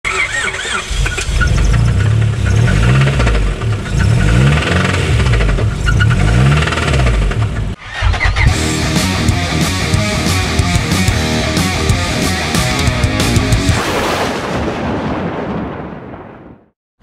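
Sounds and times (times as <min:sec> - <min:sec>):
engine knocking clatter: 0:00.0 - 0:07.8
car engine revving: 0:00.1 - 0:13.8.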